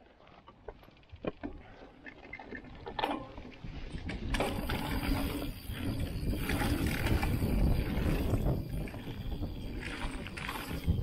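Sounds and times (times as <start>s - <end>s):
bike rattling and clicking: 0.0s - 11.0s
bike tyre noise: 0.0s - 11.0s
wind rumble on microphone: 3.6s - 11.0s.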